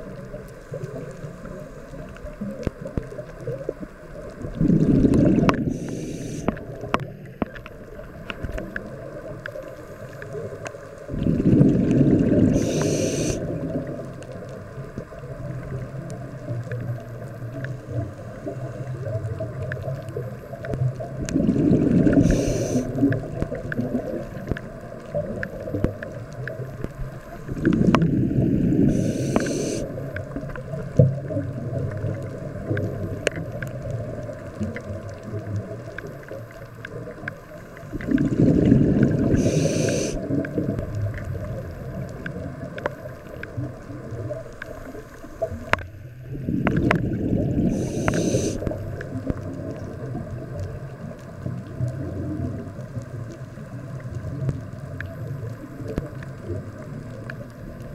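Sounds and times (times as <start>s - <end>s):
diver exhaling bubbles: 4.4s - 7.2s, 11.1s - 14.0s, 21.1s - 24.5s, 27.5s - 30.3s, 37.9s - 41.6s, 46.3s - 49.2s
faint clicks: 5.1s - 11.1s, 12.5s - 21.4s, 22.0s - 28.1s, 28.9s - 38.3s, 39.1s - 45.9s, 47.7s - 57.9s
steady low hum: 12.4s - 13.4s, 28.2s - 30.1s, 39.0s - 40.2s, 47.5s - 48.8s.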